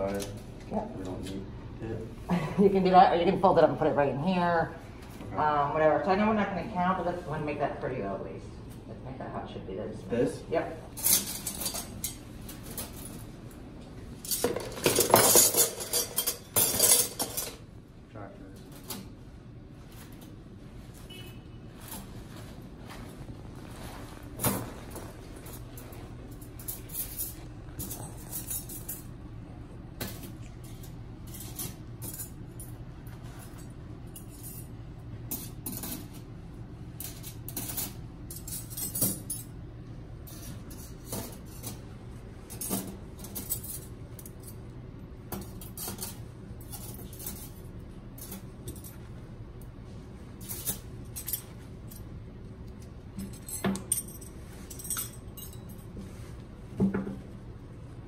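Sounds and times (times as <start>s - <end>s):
metal instruments clinking: 11.0s - 13.2s, 14.2s - 17.6s, 25.4s - 29.2s, 37.0s - 39.6s, 53.1s - 56.0s.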